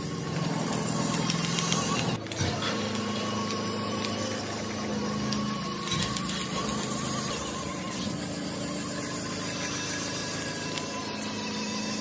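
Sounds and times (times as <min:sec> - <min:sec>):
small electric motor whirring: 0:00.0 - 0:12.0.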